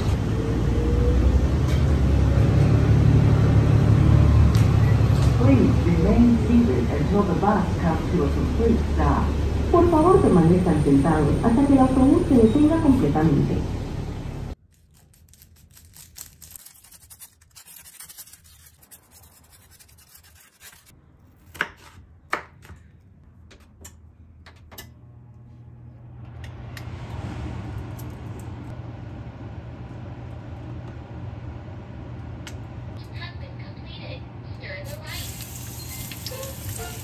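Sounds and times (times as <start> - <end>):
low hum with hiss: 5.2 - 14.6, 24.8 - 36.9
knife slicing onion on board: 20.4 - 22.8.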